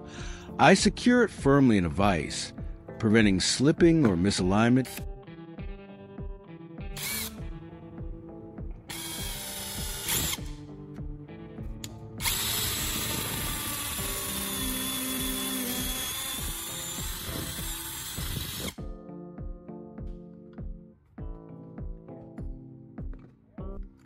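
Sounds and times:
background music: 0.0s - 24.0s
power drill boring into wood: 4.8s - 5.1s, 7.0s - 7.4s, 8.9s - 10.6s, 12.2s - 18.8s.

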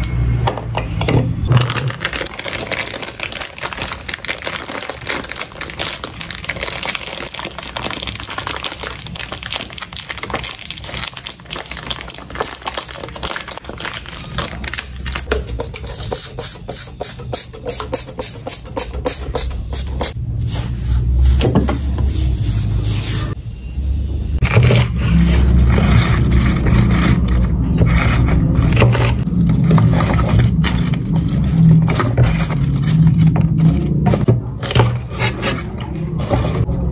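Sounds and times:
plastic bag crinkling: 1.5s - 15.8s, 26.2s - 35.1s.

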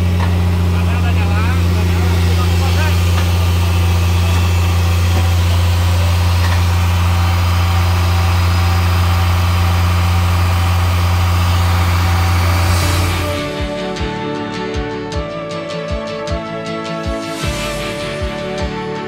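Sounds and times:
diesel truck engine idling: 0.0s - 14.8s.

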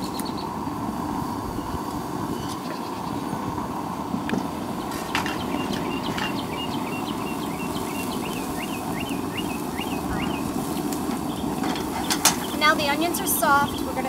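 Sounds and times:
onions sauteing in a pan: 4.6s - 14.0s
bird chirping: 4.8s - 14.0s.

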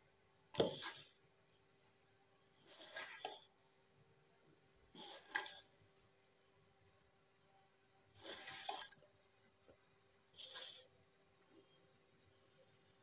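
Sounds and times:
hand mixing flour in metal bowl: 8.2s - 8.9s.

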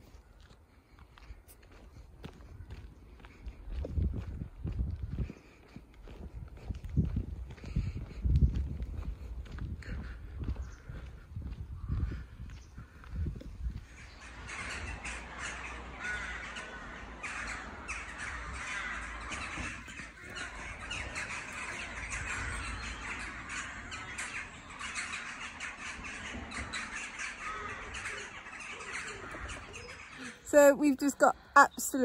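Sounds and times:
rooks cawing: 9.8s - 32.0s.

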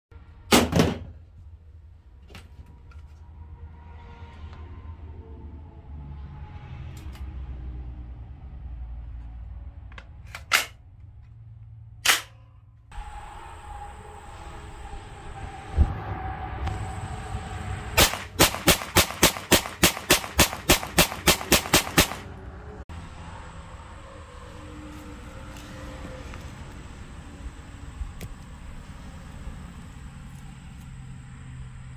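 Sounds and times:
gunshots outdoors: 17.9s - 22.4s.

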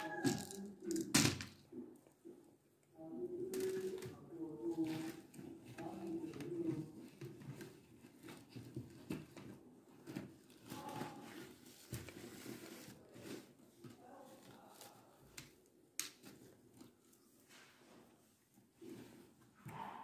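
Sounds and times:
plastic beads clicking and rustling: 0.0s - 1.6s.

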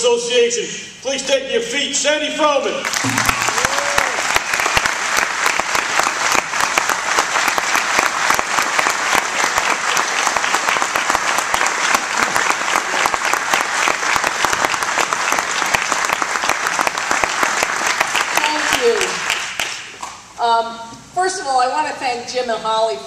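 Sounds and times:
audience applauding: 2.8s - 20.0s.

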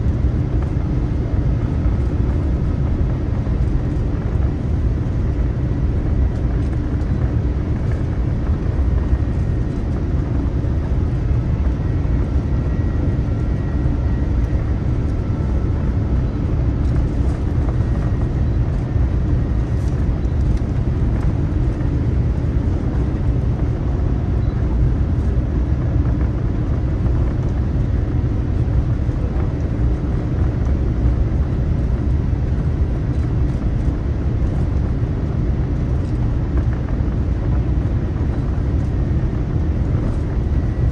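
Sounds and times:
airplane cabin engine rumble: 0.0s - 40.9s.

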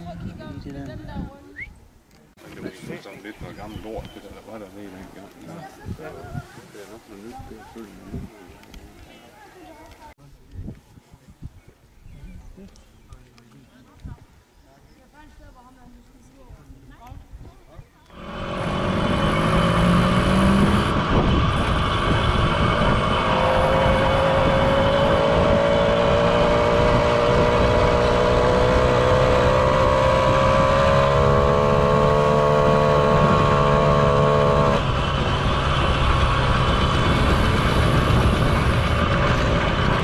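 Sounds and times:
wind rushing over microphone: 0.0s - 4.3s, 7.3s - 9.0s, 16.4s - 40.0s
moped engine running: 18.1s - 40.0s.

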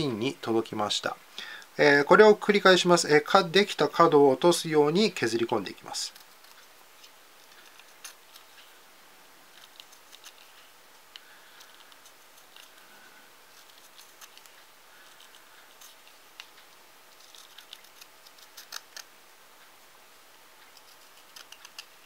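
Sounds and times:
knife shaving pencil wood: 6.0s - 8.8s, 9.5s - 19.1s, 20.7s - 22.0s.

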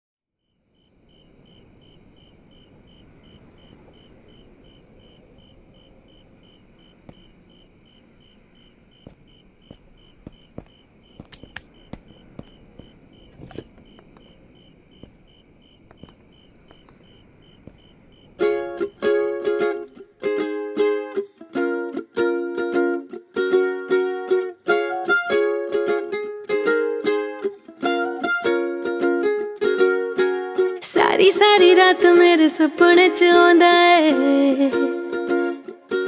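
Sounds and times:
cricket chirping: 0.3s - 32.4s
faint hiss: 0.5s - 21.7s
soft taps and scuffs: 7.0s - 7.4s, 8.9s - 18.9s.

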